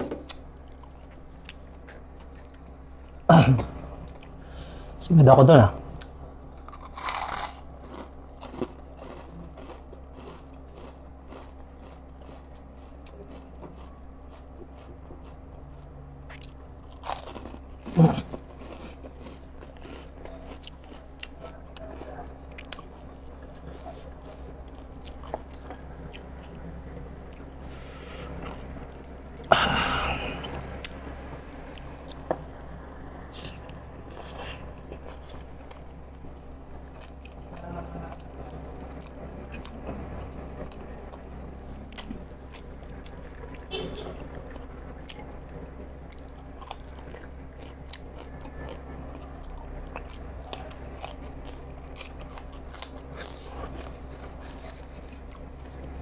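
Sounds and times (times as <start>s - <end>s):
man chewing dumplings: 0.0s - 5.0s, 5.8s - 56.0s
loud crunch: 6.6s - 15.4s.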